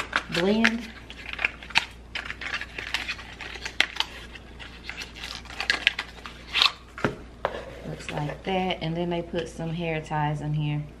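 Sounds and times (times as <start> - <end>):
packaging rustling: 0.0 - 8.3.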